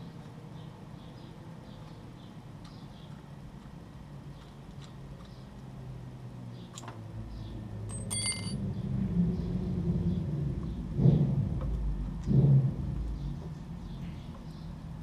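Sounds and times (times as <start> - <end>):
low engine rumble: 4.2 - 15.0
ringing metallic clink: 7.9 - 8.6.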